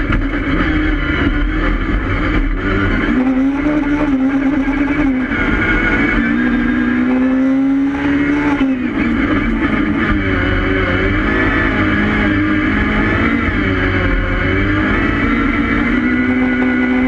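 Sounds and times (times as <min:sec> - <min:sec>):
race car engine at high revs: 0:00.0 - 0:17.0
tyre and road noise: 0:00.0 - 0:17.0.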